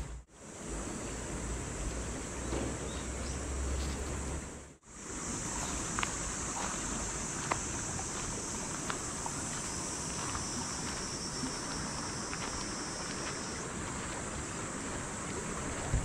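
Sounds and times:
insect drone: 0:00.0 - 0:16.0
wind on microphone: 0:13.6 - 0:16.0.

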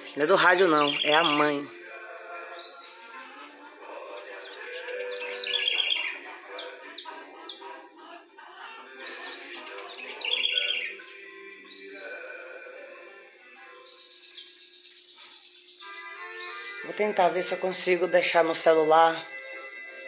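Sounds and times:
thrush calling: 0:04.5 - 0:07.7.

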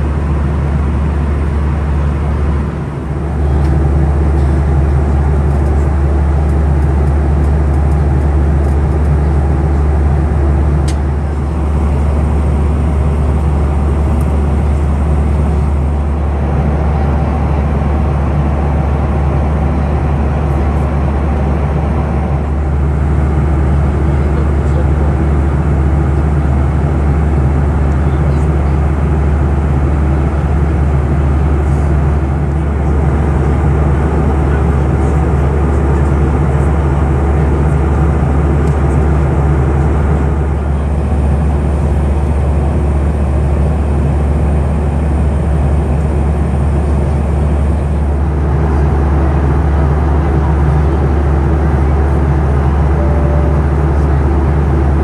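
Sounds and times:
airplane cabin engine roar: 0:00.0 - 0:55.0
deep steady hum: 0:00.0 - 0:55.0.

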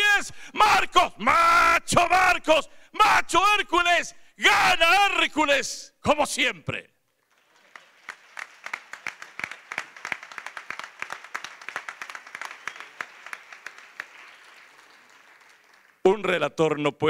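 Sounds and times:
crowd applauding: 0:07.2 - 0:16.1.

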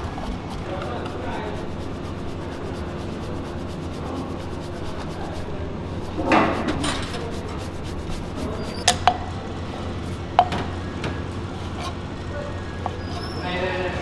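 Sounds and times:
cheese rubbed on metal grater: 0:00.0 - 0:08.9
loud scrape: 0:00.0 - 0:08.9
kitchen hum: 0:00.0 - 0:14.0.

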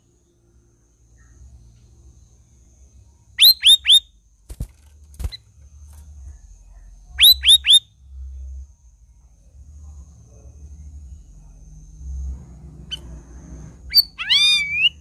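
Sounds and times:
bird whistling: 0:03.4 - 0:04.1, 0:07.2 - 0:07.9, 0:13.9 - 0:15.0.

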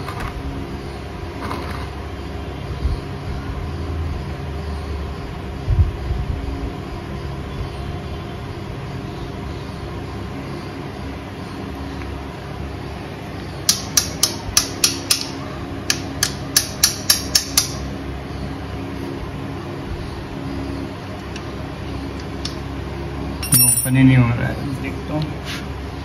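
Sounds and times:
steady background hum: 0:00.0 - 0:26.0
sharp metallic tool clicks: 0:13.7 - 0:17.8.

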